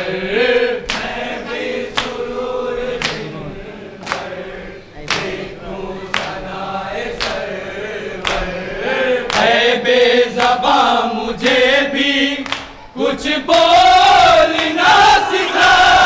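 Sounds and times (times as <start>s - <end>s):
men chanting a lament: 0.0s - 16.0s
chest-beating slaps: 3.0s - 3.3s.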